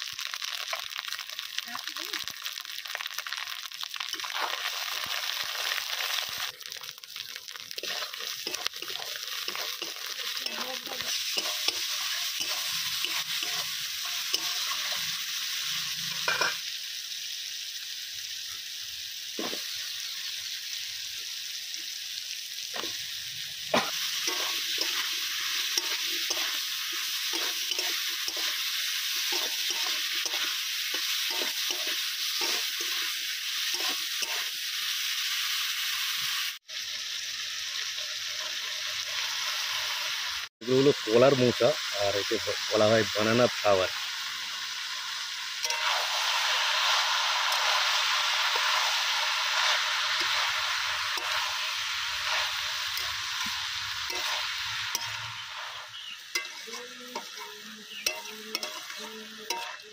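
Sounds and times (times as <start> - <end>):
spices sizzling in hot oil: 0.0 - 59.9
spoon scraping pan: 7.8 - 15.2, 23.8 - 33.1, 49.5 - 59.9.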